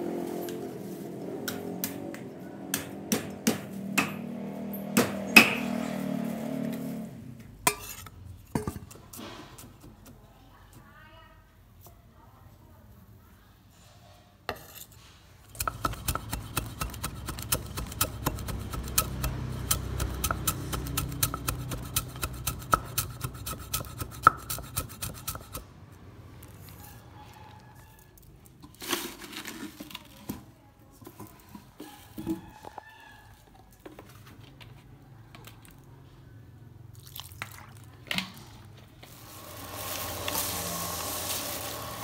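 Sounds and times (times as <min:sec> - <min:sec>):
cleaver chopping on wooden block: 0:15.6 - 0:25.6.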